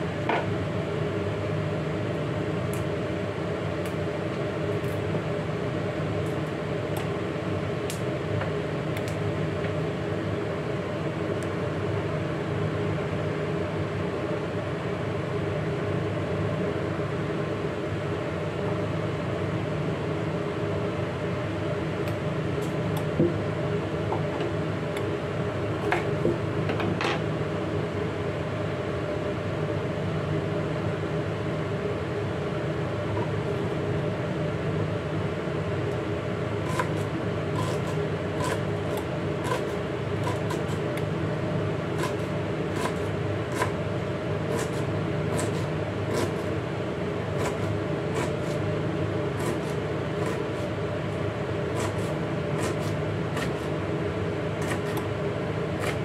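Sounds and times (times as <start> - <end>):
steady mechanical hum: 0.0 - 56.0
knife chopping on cutting board: 36.7 - 40.9, 42.0 - 43.8, 44.5 - 46.5, 47.4 - 48.6, 49.4 - 50.7, 51.8 - 53.7, 54.6 - 55.0, 55.8 - 56.0.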